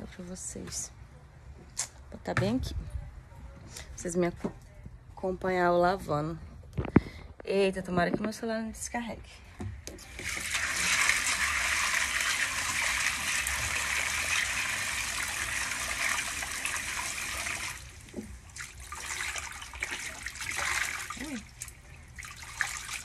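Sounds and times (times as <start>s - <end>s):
tap water running into bowl: 9.9s - 23.0s
water swishing in bowl: 10.1s - 23.0s.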